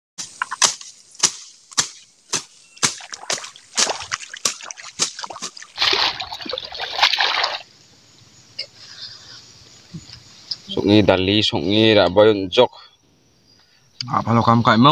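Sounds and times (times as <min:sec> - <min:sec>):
tool chopping into weeds and soil: 0:00.2 - 0:06.0
water and mud splashing: 0:00.2 - 0:07.7.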